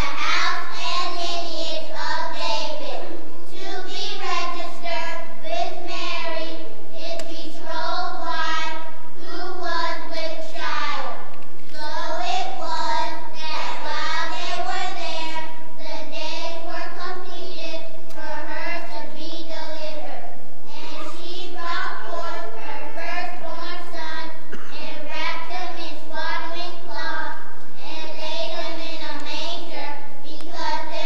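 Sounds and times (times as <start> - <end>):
children's voices in unison: 0.0 - 17.6, 20.7 - 25.8.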